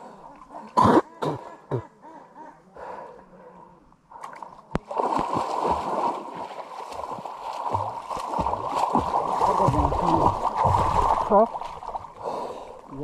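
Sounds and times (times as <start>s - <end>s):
water splashing and sloshing: 4.1s - 13.0s.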